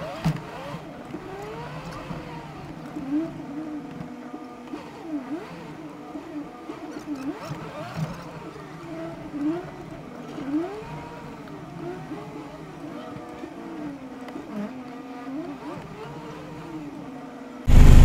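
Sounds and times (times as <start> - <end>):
truck engine running: 17.7 - 18.0.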